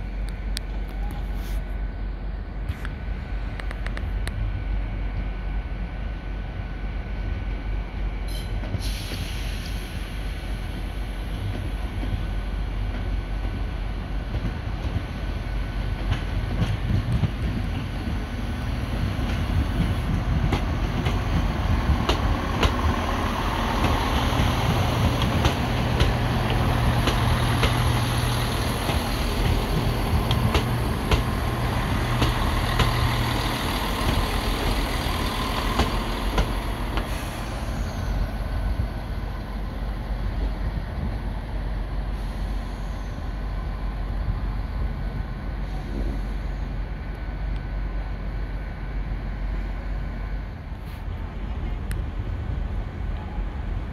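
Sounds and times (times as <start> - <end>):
diesel train rumbling: 0.0 - 53.9.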